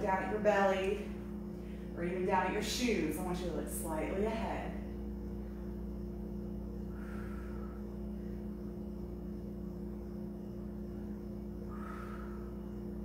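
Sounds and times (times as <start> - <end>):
steady low electrical hum: 0.0 - 13.0.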